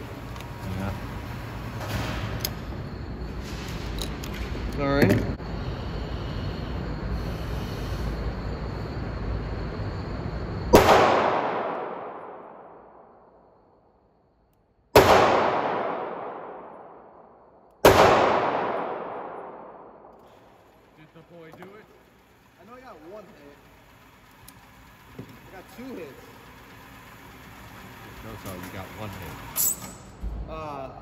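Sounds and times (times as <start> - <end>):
steady background noise: 0.0 - 31.0
pistol shots echoing: 10.7 - 13.0, 14.9 - 17.2, 17.8 - 20.1.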